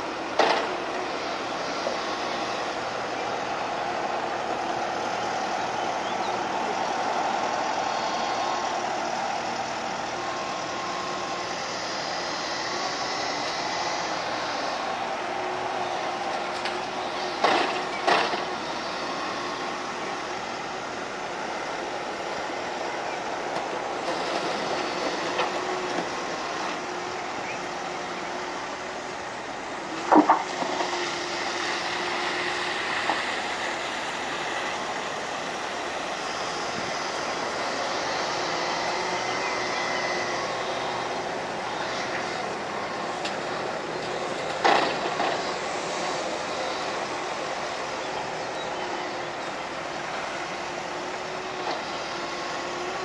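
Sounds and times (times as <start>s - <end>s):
excavator running under load: 0.0s - 53.0s.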